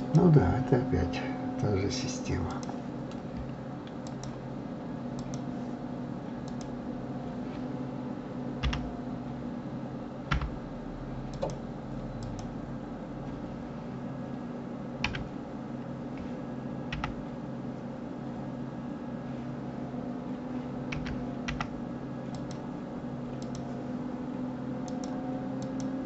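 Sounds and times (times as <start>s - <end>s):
steady low hum: 0.0s - 26.0s
keyboard and mouse clicks: 2.6s - 4.4s, 5.2s - 5.4s, 6.4s - 6.7s, 8.6s - 8.9s, 11.3s - 11.6s, 12.2s - 12.5s, 15.0s - 15.3s, 20.9s - 21.7s, 22.3s - 22.6s, 23.4s - 23.7s.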